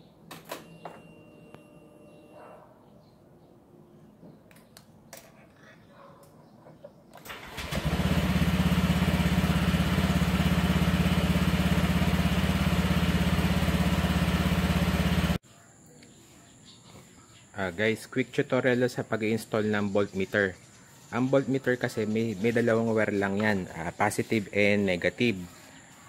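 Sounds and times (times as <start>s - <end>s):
scooter engine starting and idling: 7.2s - 15.4s.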